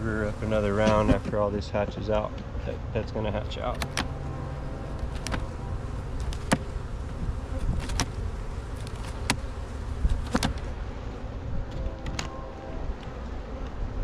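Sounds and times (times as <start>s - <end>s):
bees buzzing: 0.0s - 14.0s
sharp clicks: 3.7s - 4.1s.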